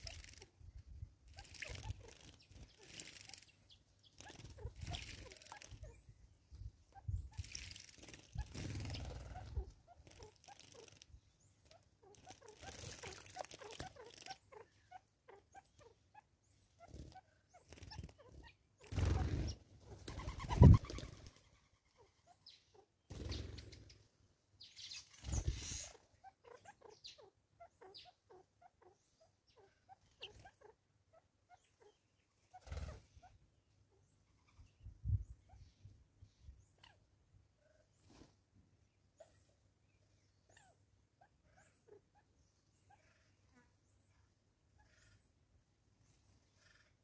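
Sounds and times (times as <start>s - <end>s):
birds splashing and fluttering: 0.0s - 0.5s, 1.3s - 3.5s, 4.1s - 5.9s, 7.4s - 14.4s, 18.9s - 21.4s, 23.1s - 24.0s
short bird chirps: 24.6s - 26.0s.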